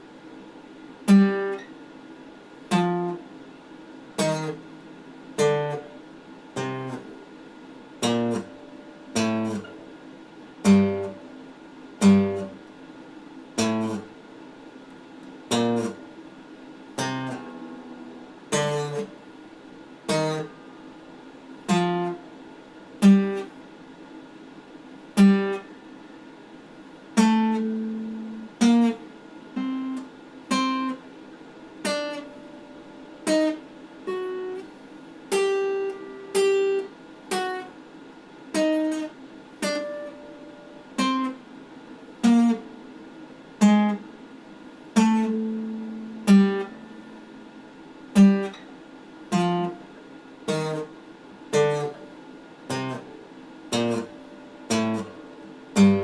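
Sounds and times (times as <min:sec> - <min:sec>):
acoustic guitar plucked notes: 0:01.0 - 0:01.7, 0:02.7 - 0:03.2, 0:04.2 - 0:04.7, 0:05.4 - 0:07.3, 0:08.0 - 0:09.9, 0:10.6 - 0:11.2, 0:12.0 - 0:12.7, 0:13.6 - 0:14.1, 0:15.3 - 0:16.1, 0:17.0 - 0:19.2, 0:20.0 - 0:21.0, 0:21.6 - 0:22.4, 0:23.0 - 0:23.5, 0:25.2 - 0:25.7, 0:27.1 - 0:31.0, 0:31.8 - 0:34.7, 0:35.3 - 0:37.7, 0:38.5 - 0:41.4, 0:42.2 - 0:42.9, 0:43.6 - 0:44.1, 0:45.0 - 0:47.3, 0:48.1 - 0:48.7, 0:49.3 - 0:50.9, 0:51.5 - 0:52.1, 0:52.7 - 0:56.0.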